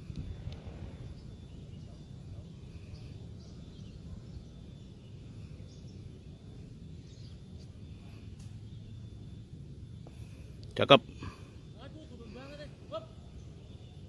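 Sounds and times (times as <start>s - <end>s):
bird chirps: 0.0s - 14.0s
steady low rumble: 0.0s - 14.0s.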